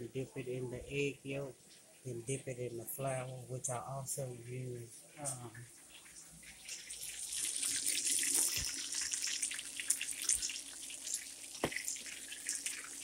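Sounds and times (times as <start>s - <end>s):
chicken sizzling in frying oil: 5.8s - 13.0s.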